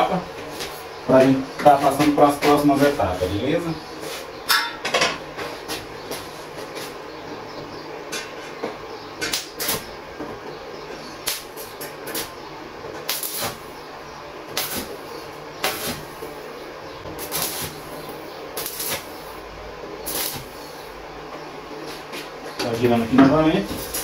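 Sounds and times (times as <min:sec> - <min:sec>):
steady low hum: 0:00.0 - 0:24.0
welding arc bursts: 0:09.3 - 0:09.9, 0:11.2 - 0:12.3, 0:13.0 - 0:13.8, 0:14.5 - 0:16.4, 0:17.2 - 0:19.4, 0:20.0 - 0:20.8, 0:23.6 - 0:24.0.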